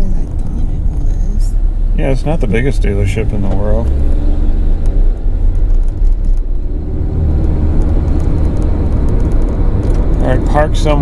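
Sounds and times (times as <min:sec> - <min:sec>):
car cabin road rumble: 0:00.0 - 0:11.0.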